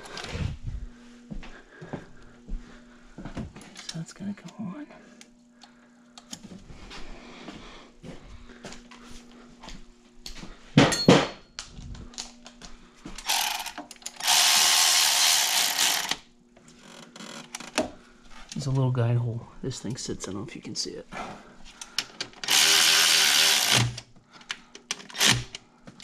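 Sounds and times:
power tool running: 0:13.2 - 0:16.2, 0:22.4 - 0:24.1, 0:25.0 - 0:25.6.

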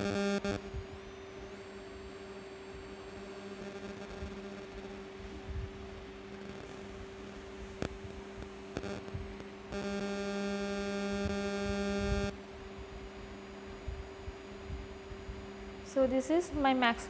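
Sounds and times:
buzzy electrical tone: 0:00.0 - 0:17.0
electrical mains hum: 0:00.0 - 0:17.0.

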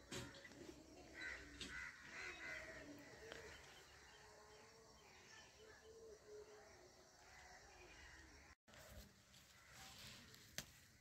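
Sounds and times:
crow cawing: 0:01.1 - 0:03.4.

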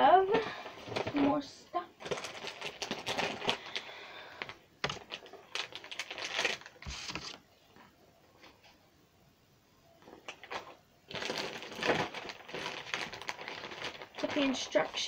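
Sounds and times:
paper bags crinkling: 0:02.0 - 0:07.4, 0:10.1 - 0:15.0.

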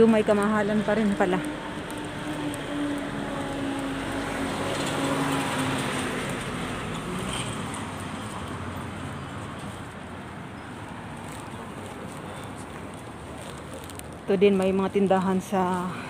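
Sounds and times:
steady traffic noise: 0:00.0 - 0:16.0
car passing by: 0:00.7 - 0:10.1.

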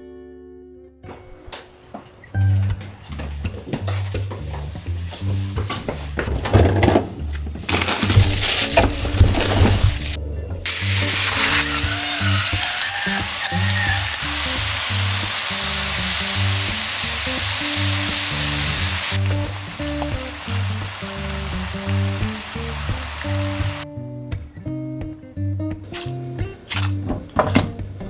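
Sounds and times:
background music: 0:00.0 - 0:28.0
pork sizzling on a griddle: 0:08.0 - 0:23.8.

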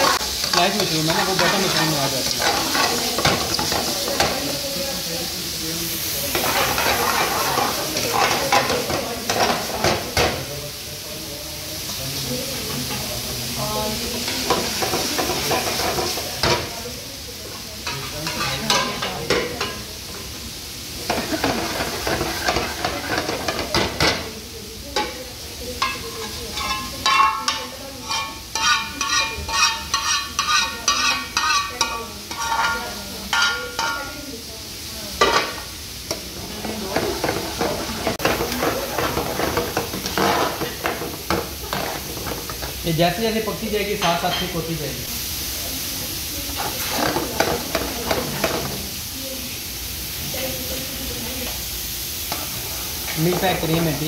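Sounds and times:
food sizzling: 0:00.0 - 0:54.0
ladle scraping frying pan: 0:21.1 - 0:24.2, 0:25.8 - 0:34.1, 0:36.9 - 0:42.8.

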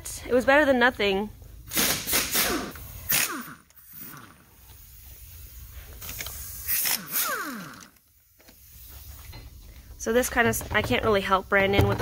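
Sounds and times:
impact wrench bursts: 0:01.7 - 0:05.0, 0:06.1 - 0:08.1.

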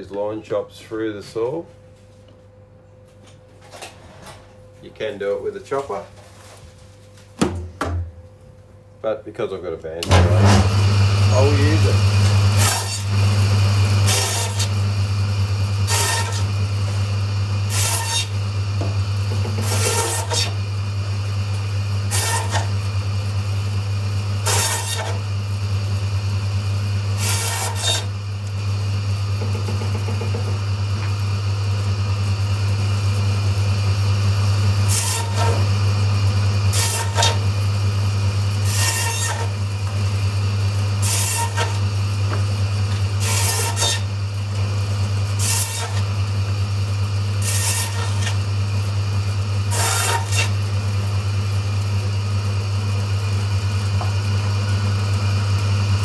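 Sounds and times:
bandsaw motor humming: 0:10.0 - 0:56.0
bandsaw cutting through bone: 0:10.1 - 0:15.0, 0:15.7 - 0:18.4, 0:19.2 - 0:20.7, 0:22.0 - 0:22.8, 0:24.4 - 0:25.3, 0:27.1 - 0:28.2, 0:34.7 - 0:35.8, 0:36.7 - 0:37.6, 0:38.6 - 0:40.2, 0:40.8 - 0:44.7, 0:45.3 - 0:46.3, 0:47.4 - 0:48.5, 0:49.6 - 0:50.7.

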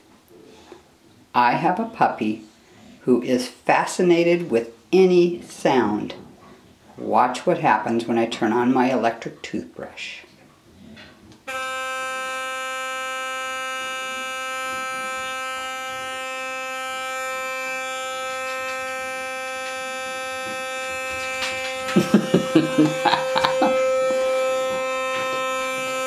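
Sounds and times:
electric toothbrush buzzing: 0:11.4 - 0:26.0.

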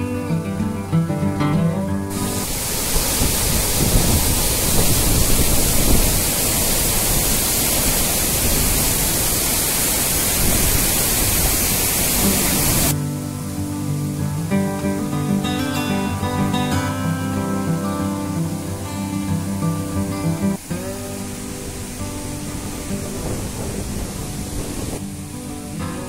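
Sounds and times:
acoustic guitar music: 0:00.0 - 0:02.6, 0:12.2 - 0:26.0
waterfall rushing water: 0:02.1 - 0:26.0.

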